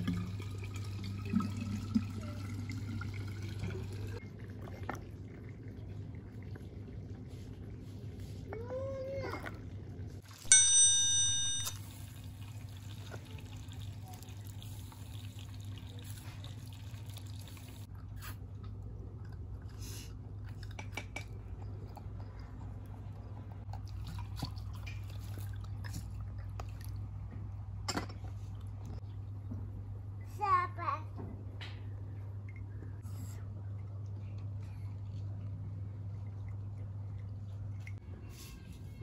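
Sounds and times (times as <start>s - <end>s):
loud ringing tone: 10.5s - 11.8s.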